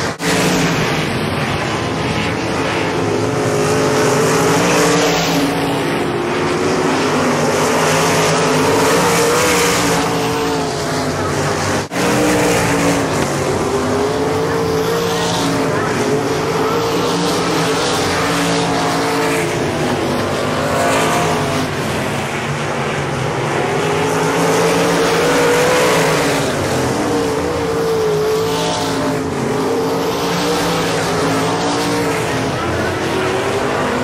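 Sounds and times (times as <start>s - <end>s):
race car engines running hard: 0.0s - 34.0s.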